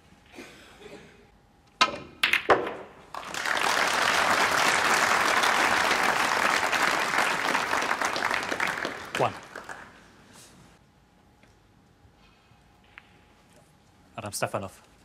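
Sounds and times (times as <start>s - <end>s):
audience applauding: 3.1s - 10.1s.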